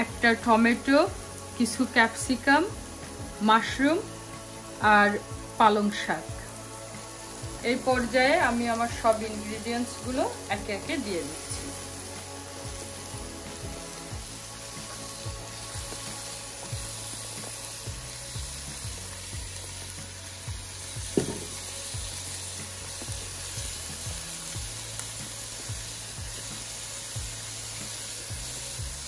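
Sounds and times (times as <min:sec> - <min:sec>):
food sizzling in oil: 0:00.0 - 0:29.0
sharp knock: 0:21.2 - 0:21.6.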